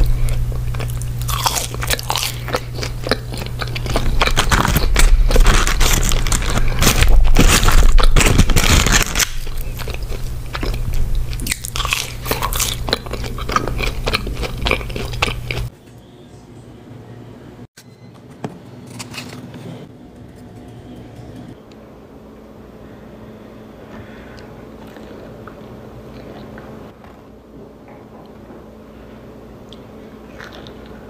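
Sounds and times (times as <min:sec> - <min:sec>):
chewing: 0:00.0 - 0:15.7, 0:24.4 - 0:26.9, 0:29.7 - 0:31.0
crunchy bites into fried food: 0:00.0 - 0:15.7
steady low hum: 0:00.0 - 0:31.0.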